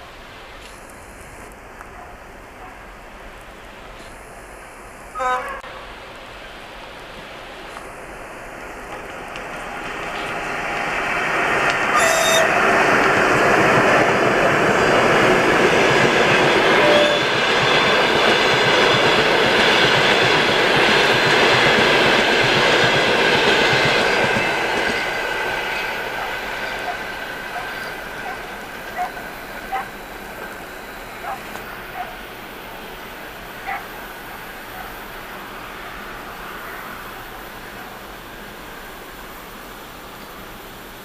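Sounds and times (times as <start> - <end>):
train wheels clattering on rails: 8.6 - 34.0.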